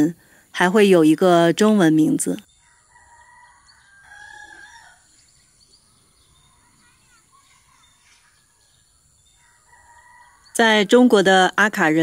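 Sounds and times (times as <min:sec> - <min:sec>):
bird calls: 0:02.4 - 0:12.0
faint rooster crowing: 0:02.5 - 0:06.9, 0:08.3 - 0:10.6.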